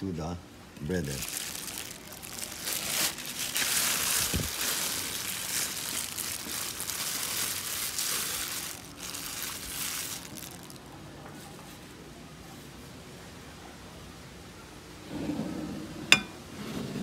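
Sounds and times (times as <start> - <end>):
plastic bag crinkling: 0.8 - 11.0.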